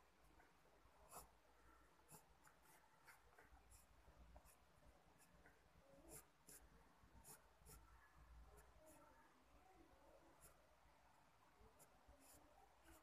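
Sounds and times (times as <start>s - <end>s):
pencil scratching on paper: 0.3s - 8.0s, 10.3s - 10.7s, 11.7s - 13.0s.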